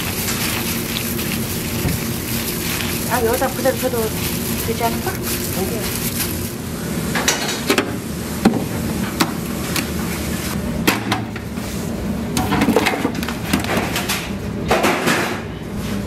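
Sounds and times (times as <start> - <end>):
kitchen knocks and clatters: 12.4 - 15.5.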